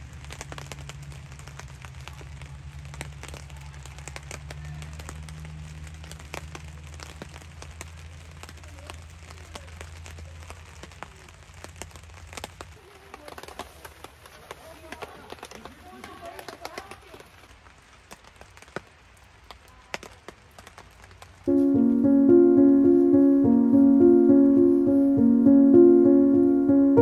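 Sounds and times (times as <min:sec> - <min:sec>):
rain on fabric awning: 0:00.0 - 0:22.0.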